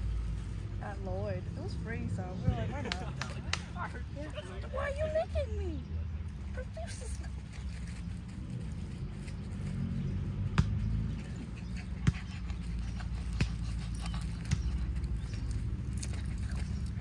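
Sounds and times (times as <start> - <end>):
sharp slaps: 2.9 - 3.8.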